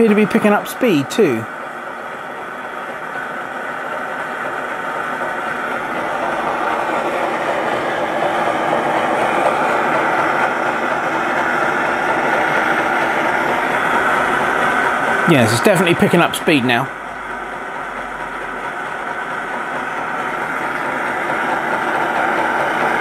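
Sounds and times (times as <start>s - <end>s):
gas burner hissing: 0.0s - 23.0s
hot air engine running: 0.0s - 23.0s.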